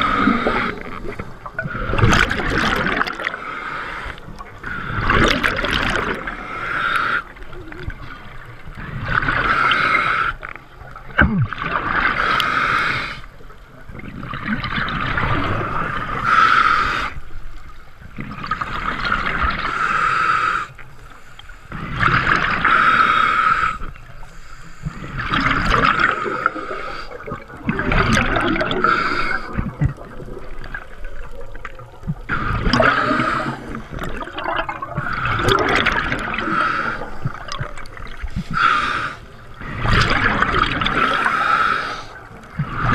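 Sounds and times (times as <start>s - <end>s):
gurgling exhaled bubbles: 0.0s - 6.5s, 7.1s - 13.0s, 13.8s - 16.2s, 18.1s - 20.0s, 24.9s - 42.9s
regulator hissing inhale: 19.7s - 22.0s, 22.6s - 25.3s, 26.1s - 27.3s, 28.7s - 29.8s, 36.3s - 37.4s, 38.3s - 39.8s, 41.1s - 42.9s.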